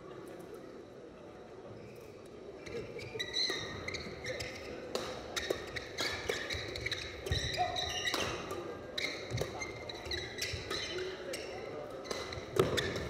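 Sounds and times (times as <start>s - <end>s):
shoes squeaking on court floor: 1.8s - 13.0s
racket striking shuttlecock: 4.8s - 8.6s, 12.0s - 13.0s.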